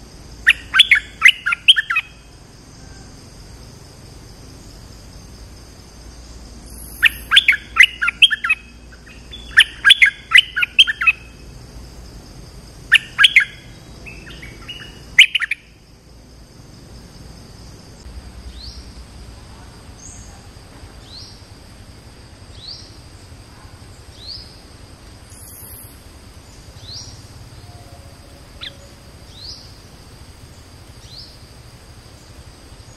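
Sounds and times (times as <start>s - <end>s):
faint steady high tone: 0.0s - 3.6s, 26.8s - 29.8s
bulbul chirpy warbled song: 0.3s - 2.3s, 6.6s - 11.5s, 12.8s - 15.8s, 26.7s - 29.8s.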